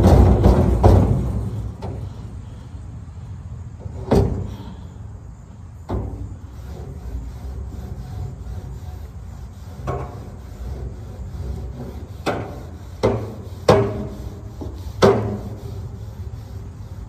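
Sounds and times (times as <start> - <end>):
metal grill grates clanking: 0.0 - 2.2.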